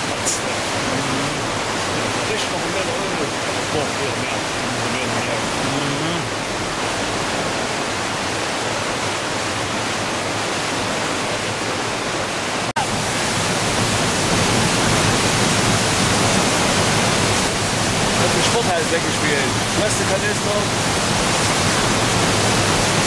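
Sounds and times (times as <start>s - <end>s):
floodwater rushing over weir: 0.0s - 23.0s.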